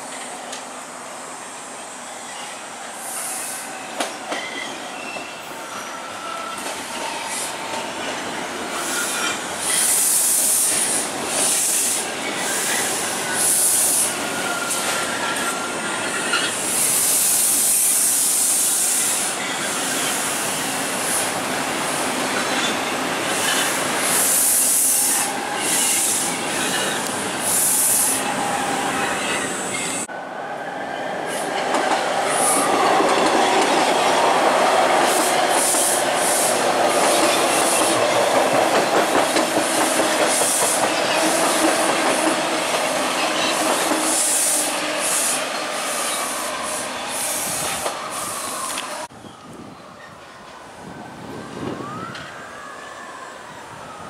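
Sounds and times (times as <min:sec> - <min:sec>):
train whine: 0:00.0 - 0:54.0
train wheels clicking on rails: 0:03.0 - 0:05.3, 0:06.5 - 0:28.2, 0:31.3 - 0:49.1.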